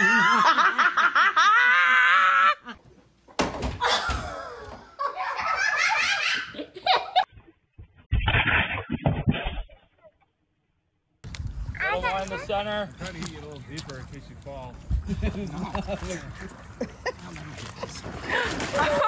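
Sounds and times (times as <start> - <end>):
woman laughing: 0.0 - 2.8, 15.1 - 19.0.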